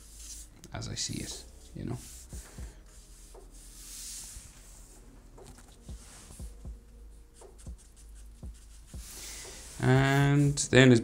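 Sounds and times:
marker drawing on paper: 0.0 - 6.7, 7.3 - 10.6
marker tapping on paper: 7.4 - 9.2.

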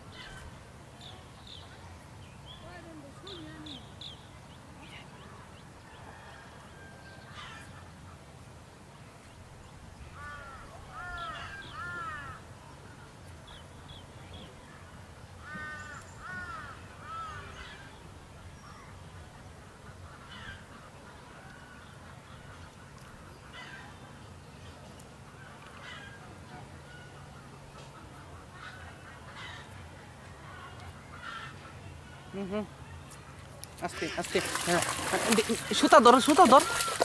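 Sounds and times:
birds calling: 10.2 - 12.4, 15.4 - 24.2, 30.4 - 37.0.

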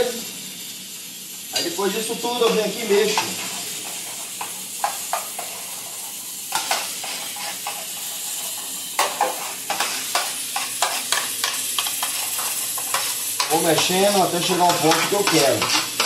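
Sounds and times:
steady hiss: 0.0 - 16.0
spoon scraping metal tray: 6.5 - 16.0.

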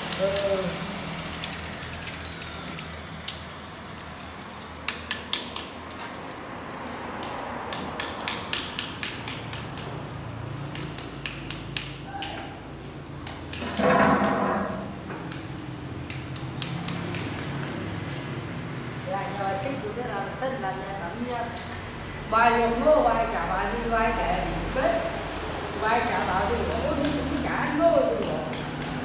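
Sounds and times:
hand tools tapping and clicking: 4.8 - 6.2, 7.1 - 10.0, 10.6 - 18.3, 26.0 - 29.0.

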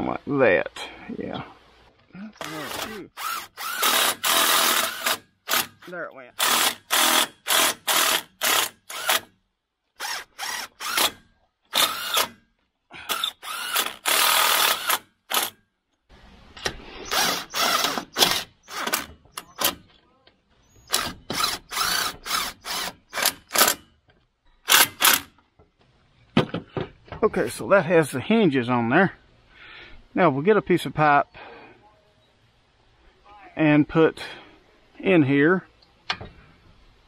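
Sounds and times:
drill driving screws: 2.4 - 9.3, 10.0 - 12.4, 13.1 - 15.6, 17.1 - 19.8, 20.9 - 23.8, 24.7 - 25.3.

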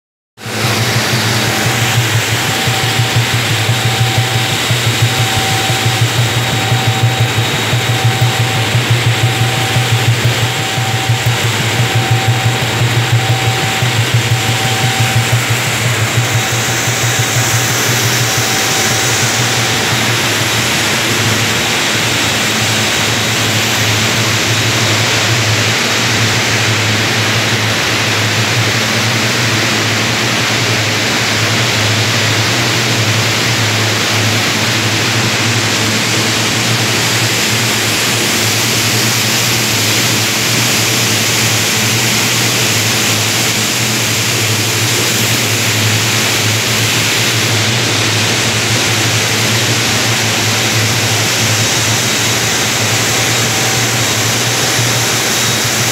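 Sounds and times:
low hum: 0.4 - 22.8
grain vacuum rushing air: 0.4 - 25.8, 33.3 - 55.9.

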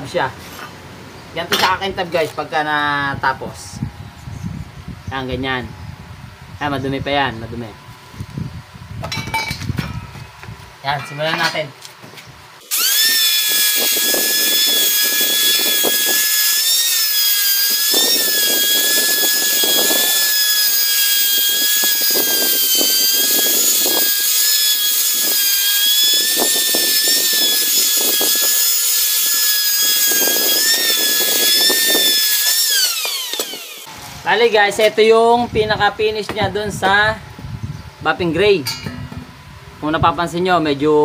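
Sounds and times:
angle grinder whining: 12.6 - 34.3
buffing wheel rubbing metal: 12.8 - 33.8.

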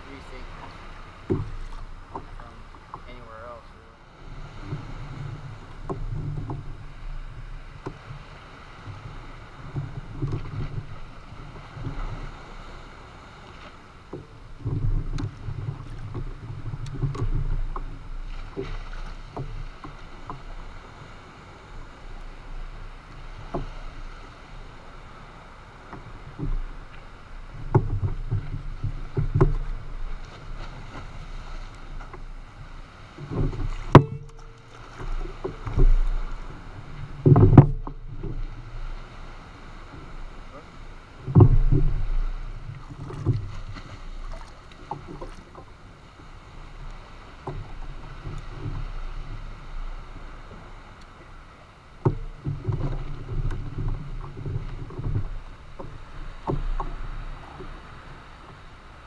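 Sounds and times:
waves lapping against kayak hull: 0.0 - 59.0
light knocks and clicks: 1.2 - 3.2, 14.1 - 20.5, 25.9 - 30.8, 33.2 - 38.5, 41.2 - 45.7, 52.0 - 57.8.

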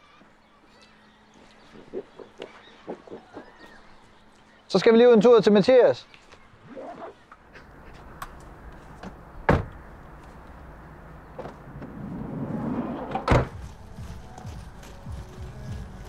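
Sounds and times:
sliding van door slamming shut: 9.0 - 9.8, 11.4 - 13.6.

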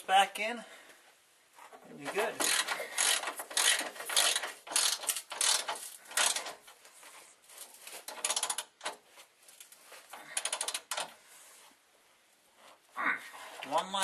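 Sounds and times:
hand ratchet clicking: 2.4 - 6.6, 8.1 - 9.0, 10.4 - 11.1.

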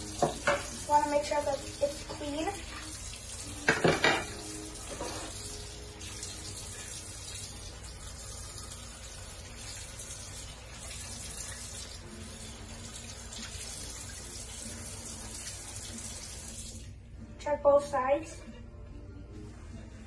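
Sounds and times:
faucet running into sink: 0.0 - 17.0
dish clattering against sink: 0.2 - 0.8, 3.6 - 5.3.

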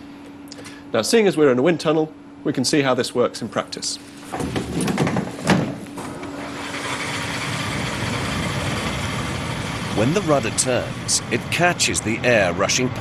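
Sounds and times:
wind tunnel air rushing: 6.5 - 13.0.

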